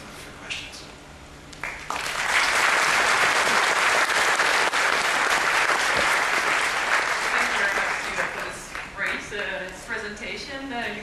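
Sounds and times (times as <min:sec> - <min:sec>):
audience applauding: 0:01.6 - 0:09.2.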